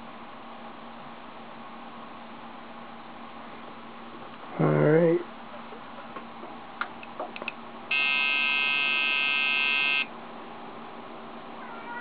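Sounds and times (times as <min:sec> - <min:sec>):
long electronic beep: 0:07.9 - 0:10.1.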